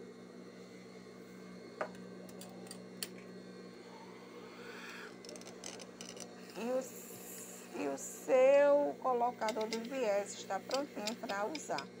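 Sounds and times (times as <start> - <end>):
light clicks of metal parts: 9.4 - 10.0, 10.7 - 11.9
sewing machine motor humming: 9.4 - 12.0.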